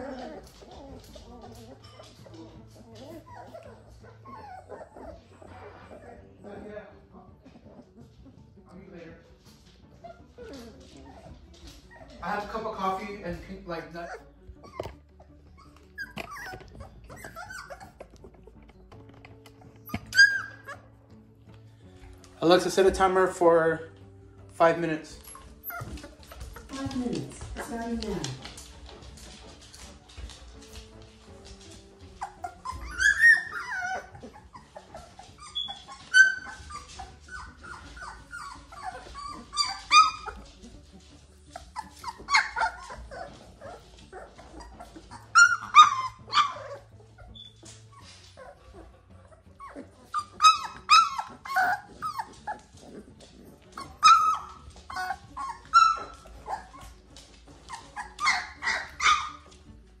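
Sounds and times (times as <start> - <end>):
puppies squealing and yipping: 0.0 - 6.7, 9.5 - 21.0, 25.0 - 59.9.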